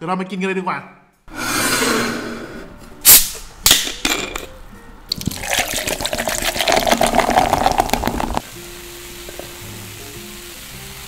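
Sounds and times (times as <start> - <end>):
bottle opening with hiss: 3.0 - 4.5, 5.1 - 8.4, 9.1 - 9.9
drink pouring into metal tumbler: 5.1 - 8.4.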